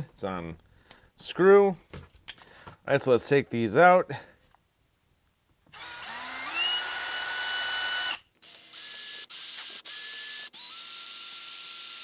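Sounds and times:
cordless drill motor whining: 0:05.7 - 0:12.0.

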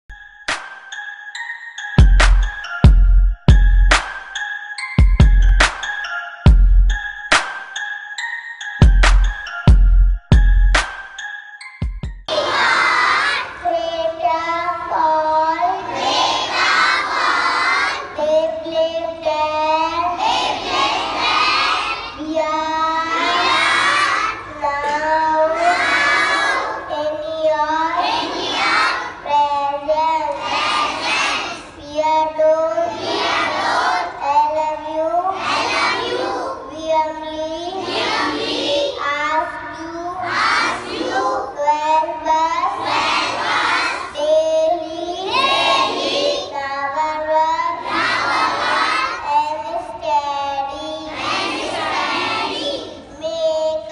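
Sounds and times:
children chanting a prayer: 0:12.3 - 0:53.9.

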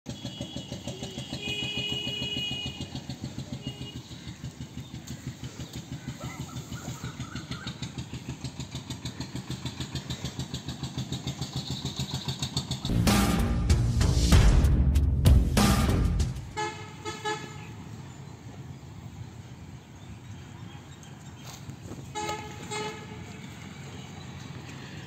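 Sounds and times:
engine thudding steadily: 0:00.1 - 0:16.6.

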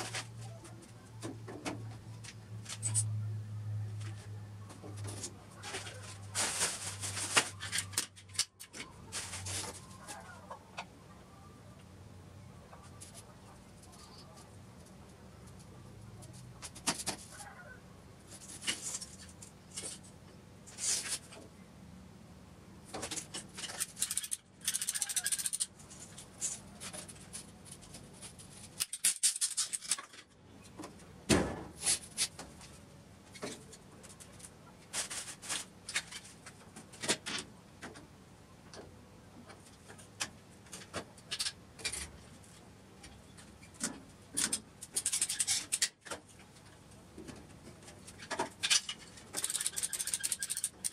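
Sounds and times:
rustling: 0:04.0 - 0:10.5
plastic pipe fittings clicking: 0:48.2 - 0:50.9.

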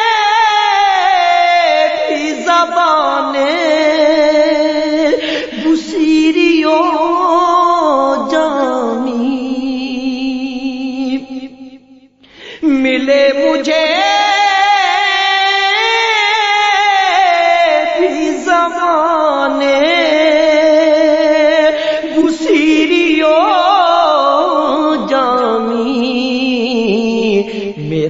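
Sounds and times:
chanted vocal drone: 0:00.0 - 0:11.6, 0:12.6 - 0:28.0
person singing ornamented notes: 0:00.0 - 0:11.6.

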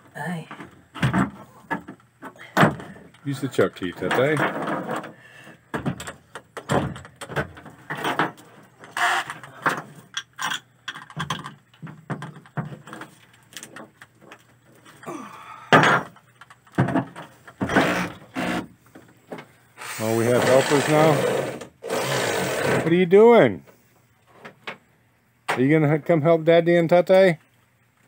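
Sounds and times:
electric drill short bursts: 0:19.8 - 0:22.9.

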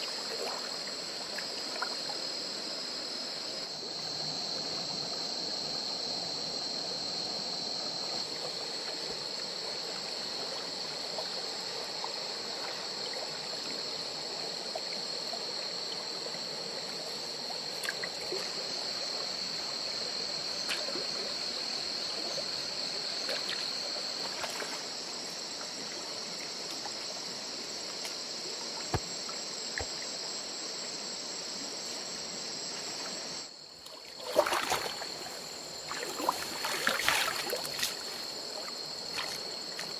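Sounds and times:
night insects chorus: 0:00.0 - 0:39.9
stream trickling over pebbles: 0:33.8 - 0:39.9
water splashing: 0:34.0 - 0:38.3.

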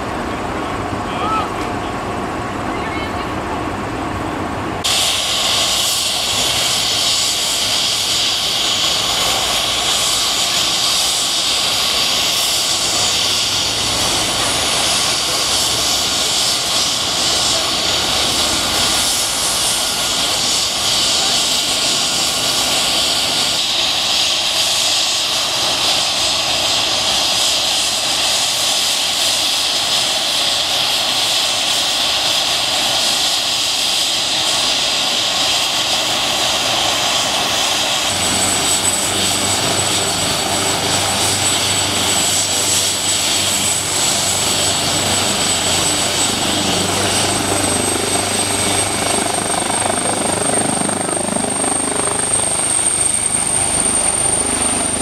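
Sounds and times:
helicopter turbine whine and rotor: 0:00.0 - 0:55.0
thin high whine: 0:38.0 - 0:51.8.

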